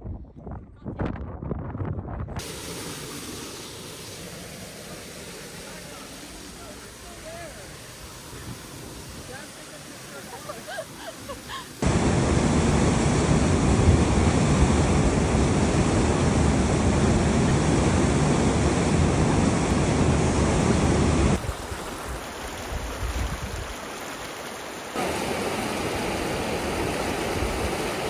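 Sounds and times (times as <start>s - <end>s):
fast stream rushing over rocks: 17.6s - 28.0s.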